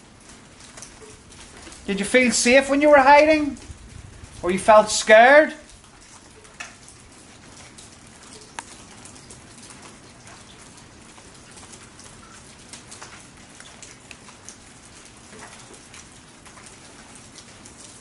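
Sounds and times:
drips and ticks: 0:00.0 - 0:18.0
rain falling: 0:00.0 - 0:18.0.

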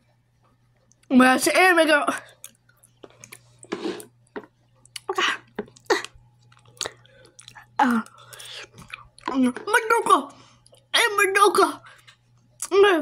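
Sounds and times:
open-mouthed chewing: 0:02.3 - 0:09.3.

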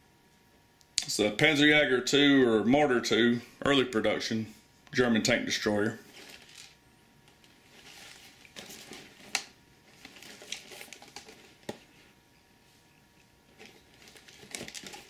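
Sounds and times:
cardboard box rustling: 0:07.6 - 0:11.9, 0:13.5 - 0:15.0.

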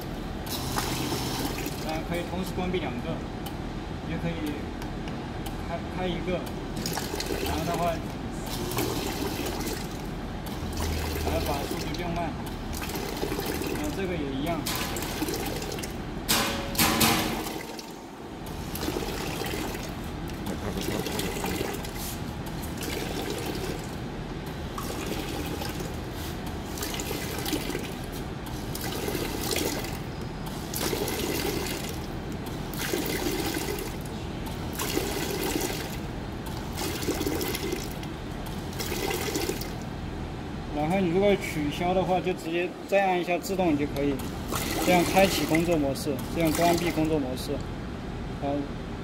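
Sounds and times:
filling machine pump pulsing: 0:00.0 - 0:02.3, 0:06.7 - 0:16.1, 0:16.8 - 0:39.8, 0:44.0 - 0:47.2
liquid splashing from nozzles: 0:00.4 - 0:02.3, 0:06.4 - 0:39.9, 0:43.9 - 0:47.3.

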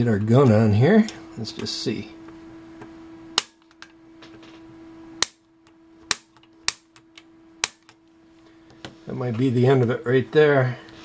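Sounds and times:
piezo igniter snapping: 0:03.4 - 0:04.0, 0:05.2 - 0:08.0.

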